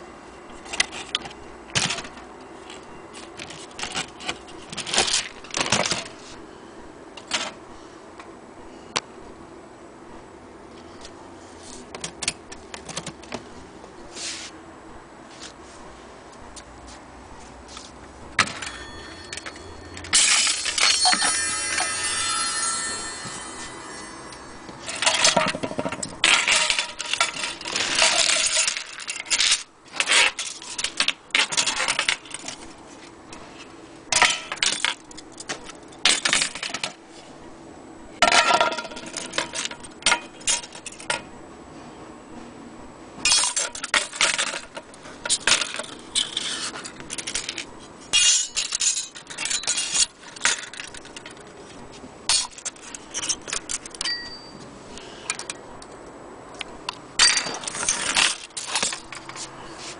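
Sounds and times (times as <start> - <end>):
metal clock parts clinking: 18.4 - 32.6, 43.3 - 51.4, 52.3 - 54.6.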